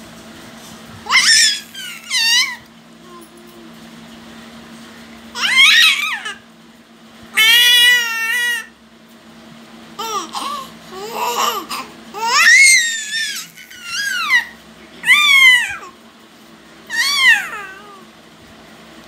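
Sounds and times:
baby squealing and babbling: 0:01.1 - 0:02.6, 0:05.4 - 0:06.4, 0:07.4 - 0:08.7, 0:10.0 - 0:15.9, 0:16.9 - 0:18.0.

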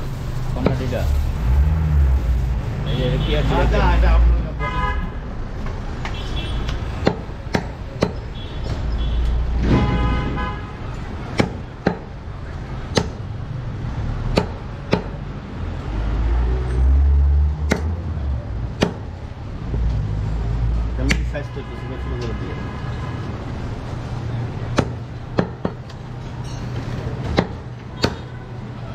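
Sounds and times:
street traffic: 0:00.0 - 0:28.9
knife chopping meat on wood block: 0:07.0 - 0:08.2, 0:11.3 - 0:12.1, 0:12.9 - 0:13.2, 0:14.3 - 0:15.2, 0:17.6 - 0:18.0, 0:18.8 - 0:19.1, 0:27.2 - 0:28.2.

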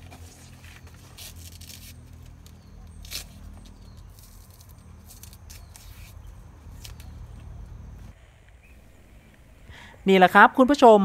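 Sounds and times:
knife cutting plant stalks: 0:00.0 - 0:07.7
leaves and stems rustling: 0:00.0 - 0:08.1.

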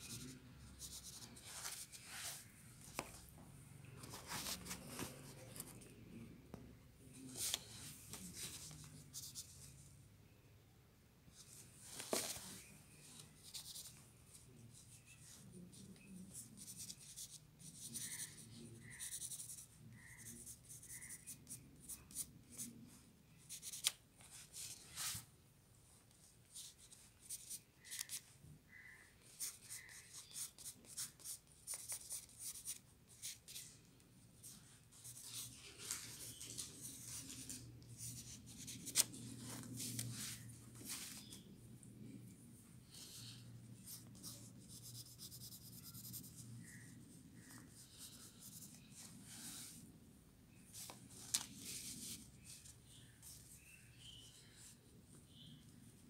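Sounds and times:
pencil scratching on paper: 0:16.2 - 0:22.6, 0:43.9 - 0:46.9.

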